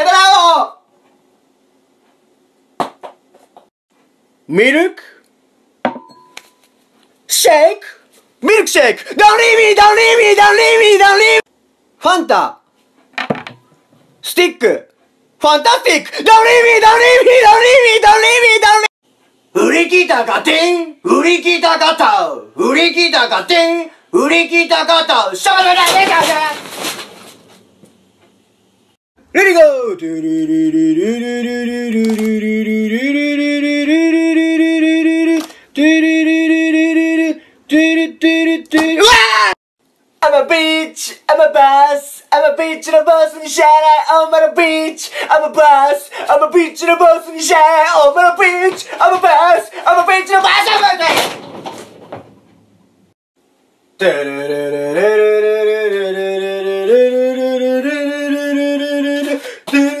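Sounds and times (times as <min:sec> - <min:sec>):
person singing long notes: 0:54.0 - 1:00.0.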